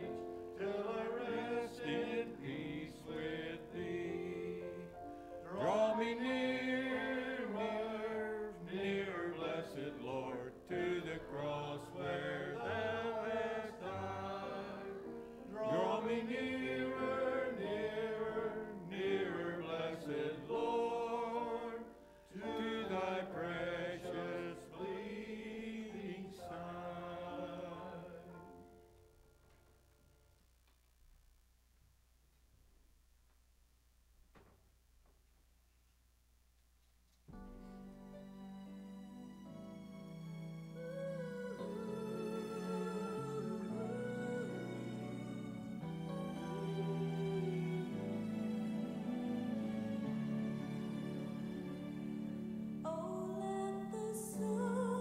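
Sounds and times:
man singing a hymn: 0.0s - 28.5s.

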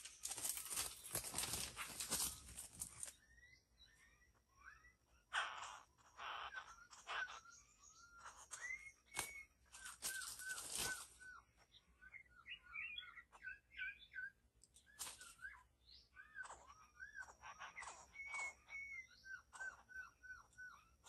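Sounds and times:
bird whistled twittering: 6.2s - 11.4s, 12.0s - 20.9s.

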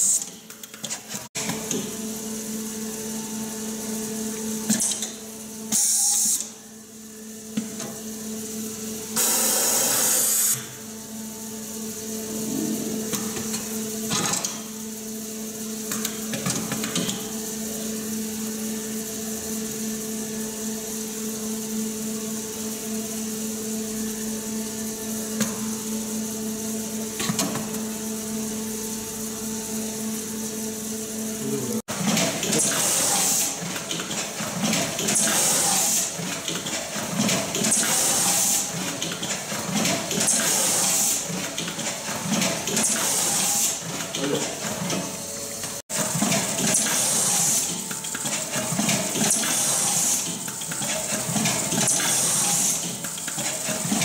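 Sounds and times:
machine electric hum and hiss: 0.0s - 54.0s
machine clatter: 31.9s - 54.0s.

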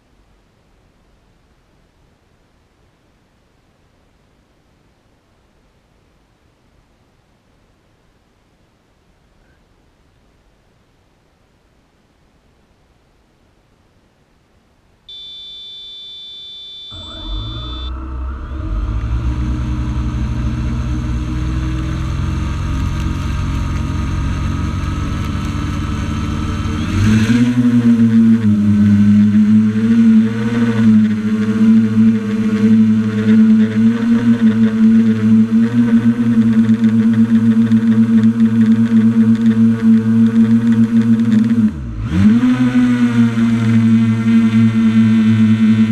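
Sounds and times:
steady electronic tone: 15.1s - 22.8s, 25.8s - 42.1s, 43.3s - 45.9s
drone motors whirring: 15.1s - 45.9s.

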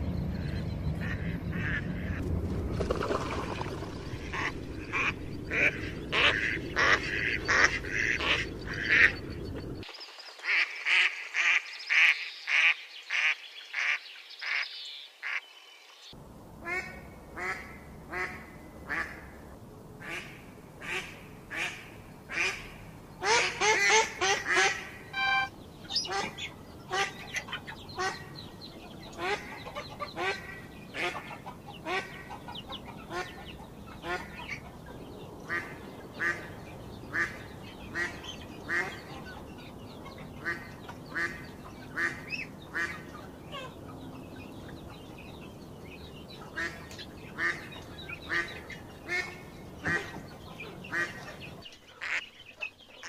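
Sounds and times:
ducks quacking: 0.4s - 9.8s, 20.0s - 43.8s, 46.4s - 53.0s
high-pitched duck peeps: 23.3s - 34.8s.

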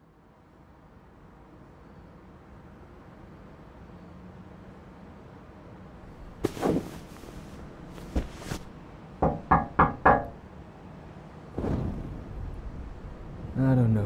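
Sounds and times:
light thuds: 6.1s - 10.4s
knocks on a door: 9.2s - 10.4s.

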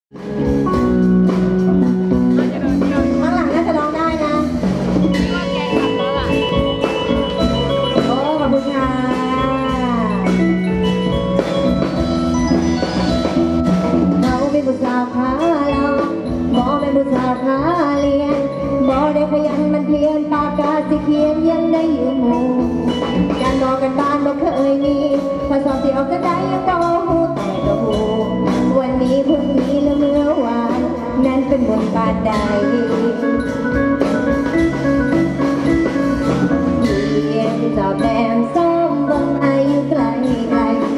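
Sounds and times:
drums: 0.1s - 40.9s
live folk band music: 0.1s - 40.9s
wooden xylophone: 1.6s - 20.2s
woman singing through microphone: 14.2s - 33.4s, 36.8s - 40.9s.

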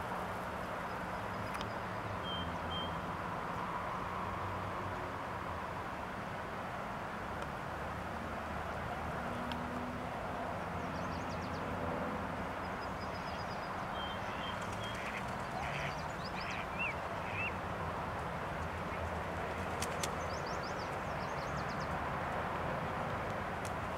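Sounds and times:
small birds chirping: 12.6s - 17.6s
waterfowl calls: 14.0s - 17.6s.

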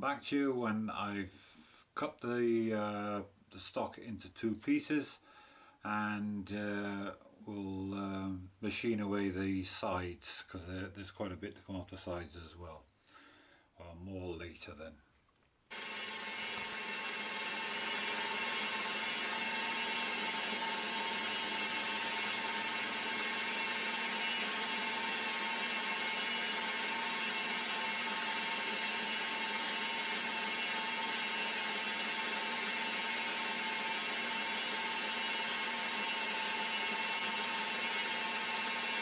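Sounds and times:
machine tool whining: 15.7s - 39.0s.

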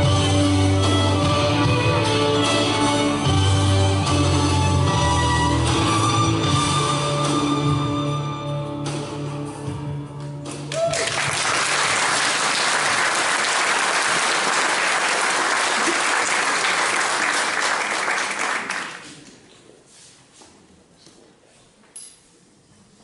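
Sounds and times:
music: 0.0s - 12.9s
audience applauding: 10.7s - 19.3s.

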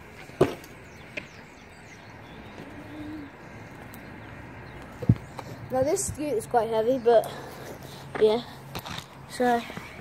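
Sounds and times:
bird cooing: 2.4s - 3.6s.

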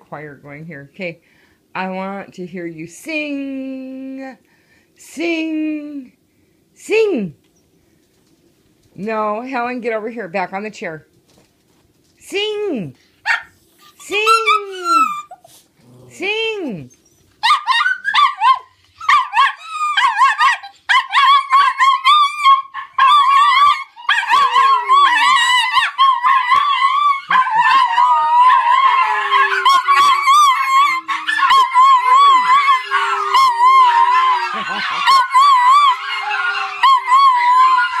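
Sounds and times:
dogs howling: 14.2s - 16.1s, 17.4s - 38.0s.

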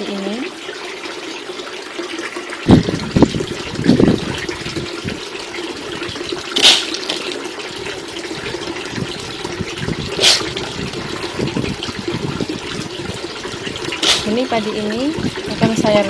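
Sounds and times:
flowing water: 0.0s - 16.0s
seeds splashing into water: 6.6s - 7.3s, 14.0s - 14.4s.

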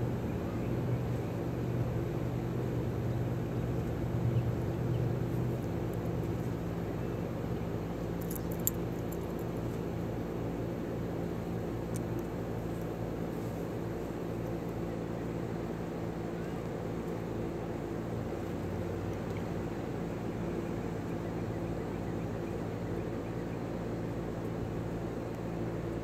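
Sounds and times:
low motor hum: 0.0s - 26.0s
metal bracelet clicks: 8.2s - 9.5s.

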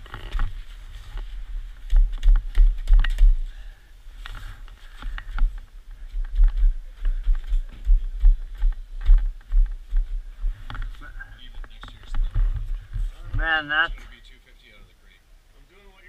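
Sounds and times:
low pulsing rumble: 5.1s - 14.0s.

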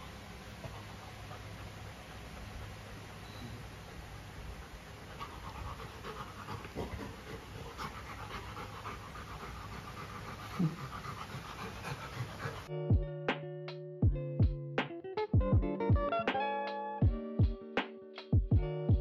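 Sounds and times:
dog panting: 0.1s - 12.7s.

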